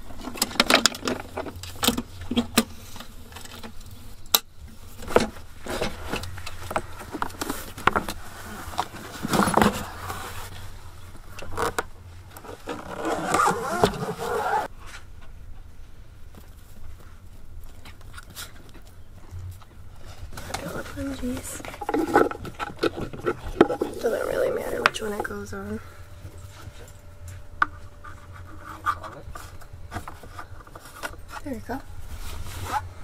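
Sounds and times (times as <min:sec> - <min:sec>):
solar panel handling clicks and scrapes: 0:00.0 - 0:10.7, 0:20.0 - 0:25.5, 0:26.3 - 0:32.9.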